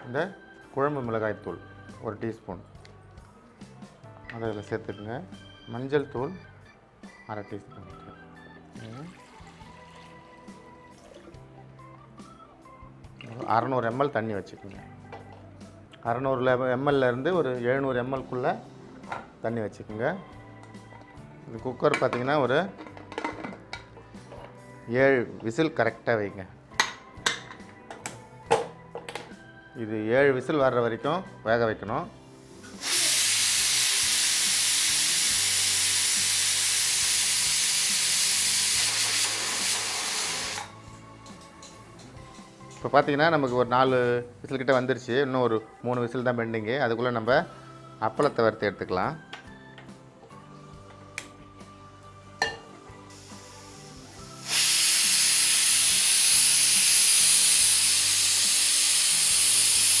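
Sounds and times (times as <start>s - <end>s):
pressure cooker steam hissing: 32.7s - 40.7s, 53.1s - 60.0s.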